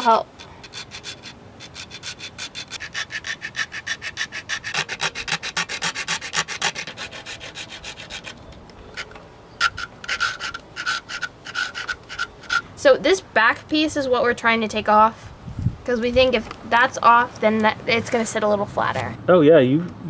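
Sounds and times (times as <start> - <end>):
hacksaw strokes: 0.0 - 12.7.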